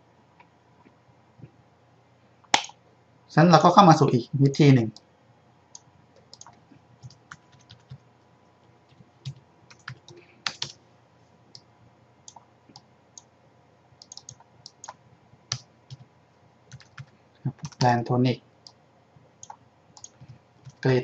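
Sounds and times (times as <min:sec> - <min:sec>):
computer keyboard and mouse clicks: 0:05.8 - 0:08.0, 0:08.9 - 0:10.8, 0:12.3 - 0:13.3, 0:14.0 - 0:16.1, 0:16.7 - 0:17.9, 0:19.4 - 0:20.9.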